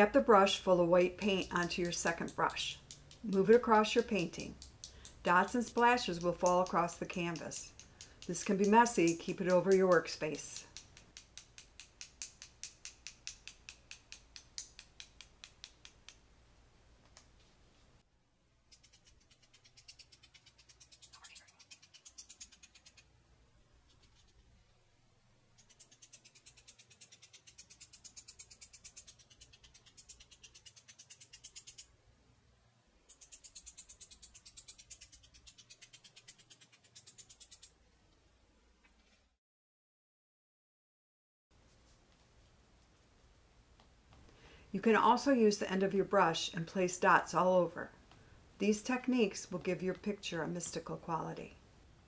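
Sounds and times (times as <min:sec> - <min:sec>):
brush tapping against brush: 0:01.2 - 0:16.3.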